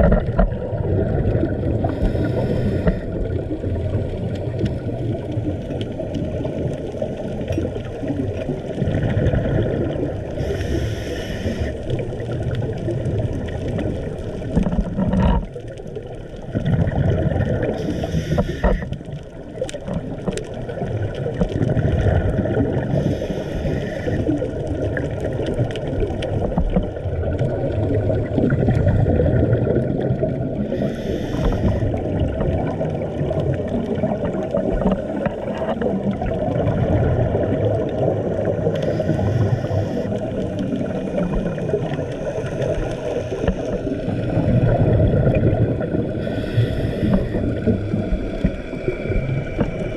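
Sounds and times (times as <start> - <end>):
scuba regulator bubbling exhaust: 0.0 - 49.9
underwater rumble: 0.0 - 49.9
faint ticks: 1.9 - 3.1, 17.7 - 20.7, 30.7 - 32.4, 38.7 - 44.2, 46.2 - 49.9.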